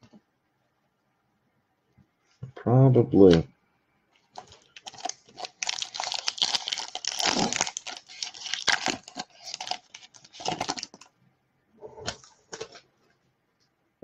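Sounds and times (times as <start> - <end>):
wrapper torn open and crinkled: 4.3 - 11.1.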